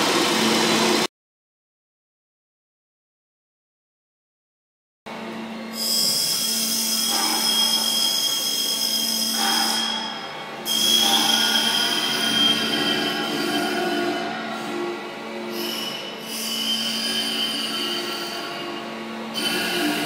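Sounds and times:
grinding disc squealing: 5.8s - 14.3s, 15.5s - 20.0s.

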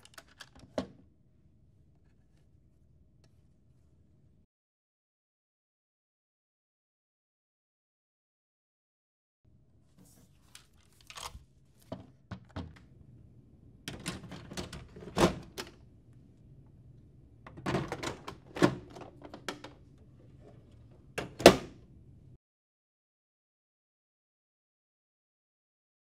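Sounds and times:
printer door thunk: 17.5s - 19.8s, 21.2s - 21.8s.

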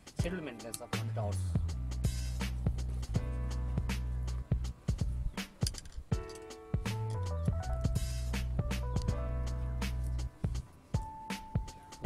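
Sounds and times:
music with a steady beat: 0.0s - 12.0s
sustained bass line: 1.0s - 5.3s, 7.1s - 10.6s.

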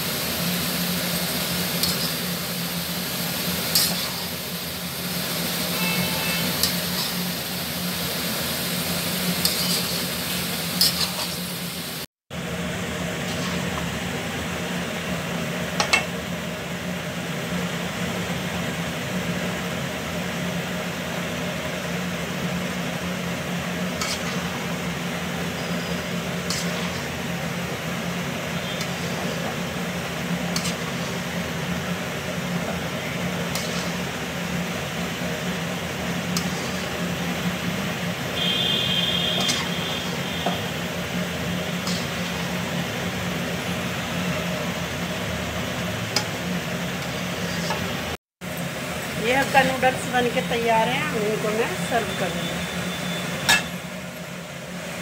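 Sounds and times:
stove hum and hiss: 0.0s - 55.0s
metal spatula scraping a pan: 5.7s - 7.3s, 9.3s - 10.1s, 10.8s - 11.5s, 13.2s - 13.8s, 23.9s - 24.7s, 25.4s - 27.3s, 28.6s - 29.6s, 30.4s - 31.4s, 33.4s - 34.2s, 36.2s - 37.1s, 39.1s - 40.4s, 41.8s - 42.5s, 47.0s - 48.0s.

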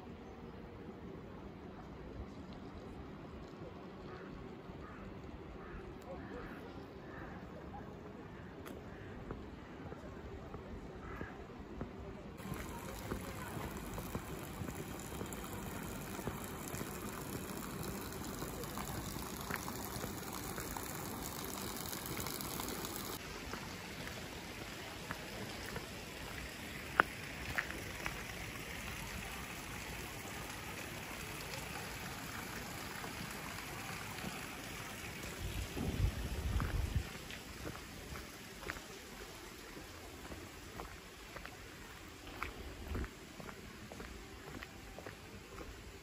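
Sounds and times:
stream rushing: 12.4s - 43.6s.

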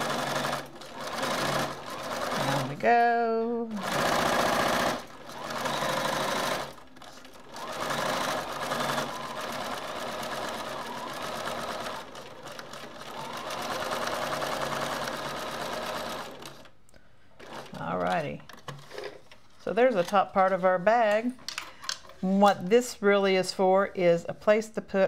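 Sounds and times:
sewing machine stitching: 0.0s - 16.7s.

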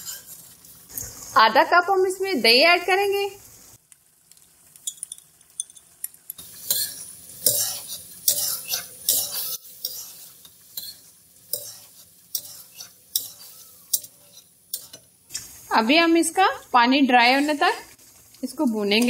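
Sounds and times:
metal spatula scraping a metal pan: 0.0s - 0.7s, 6.4s - 15.1s
gravy sizzling faintly: 0.0s - 19.0s.

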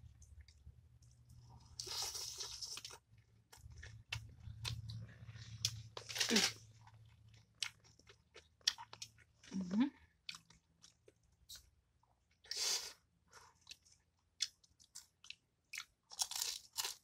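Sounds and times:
crunching and chewing fried fish: 0.0s - 12.4s, 13.2s - 17.0s.

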